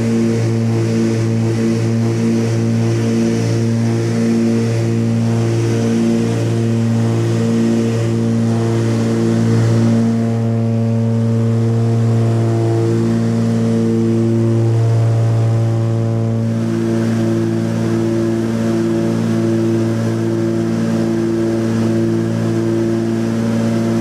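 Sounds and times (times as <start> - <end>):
propeller aircraft droning: 0.0 - 24.0.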